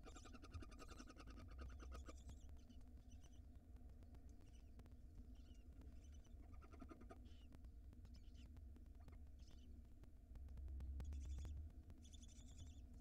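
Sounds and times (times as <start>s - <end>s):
low steady hum: 7.2s - 13.0s.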